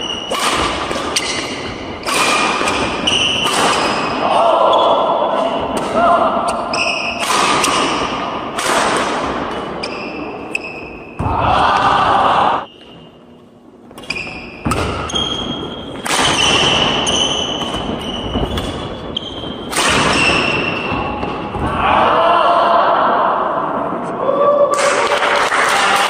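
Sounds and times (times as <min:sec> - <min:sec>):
rackets hitting shuttlecock: 0:00.0 - 0:04.2, 0:05.3 - 0:11.5, 0:13.9 - 0:21.7
shoes squeaking on wooden floor: 0:17.0 - 0:20.6.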